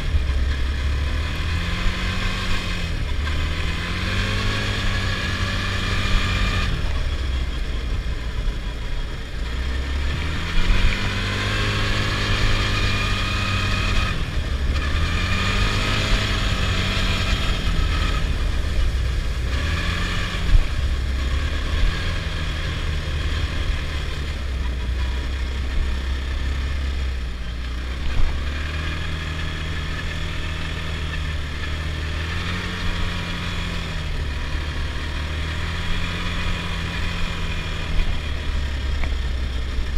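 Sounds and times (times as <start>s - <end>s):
quad engine revving: 0.0s - 39.9s.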